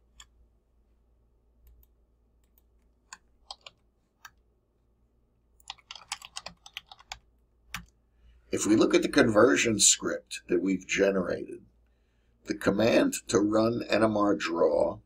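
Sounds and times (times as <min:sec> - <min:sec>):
keyboard typing: 0:01.6 - 0:04.4, 0:05.6 - 0:08.0.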